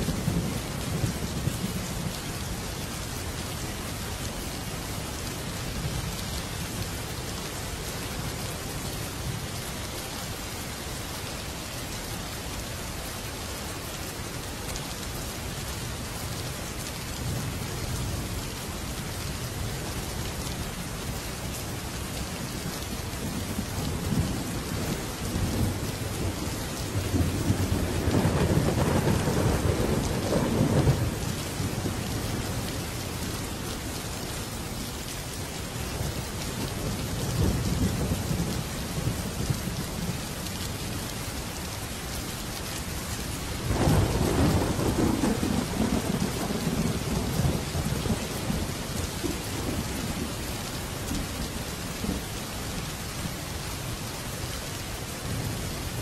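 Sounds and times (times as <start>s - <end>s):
steady rain: 0.0s - 56.0s
rolling thunder: 23.4s - 32.7s, 43.7s - 50.3s.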